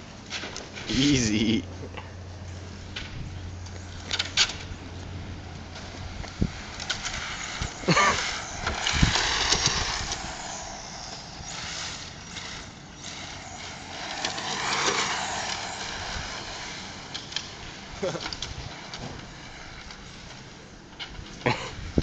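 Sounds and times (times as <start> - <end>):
tyre noise on asphalt: 0.0 - 22.0
electric rc car motor whine: 5.7 - 20.4.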